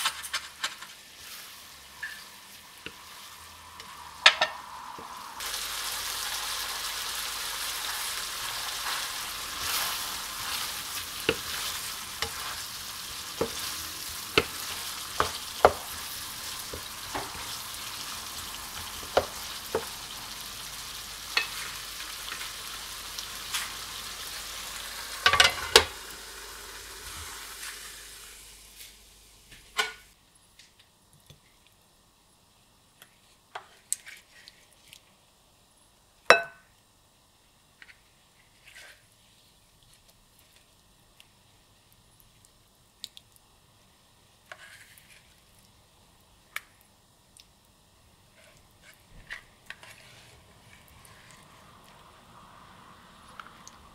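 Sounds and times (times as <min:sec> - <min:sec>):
curry sizzling in a pan: 0:00.0 - 0:30.2, 0:31.4 - 0:53.9
wooden spatula knocking on pan: 0:15.2 - 0:15.9.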